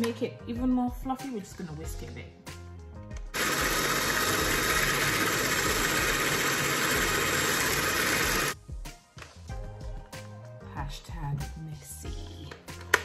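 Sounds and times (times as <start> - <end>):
electric hand mixer running: 3.3 - 8.6.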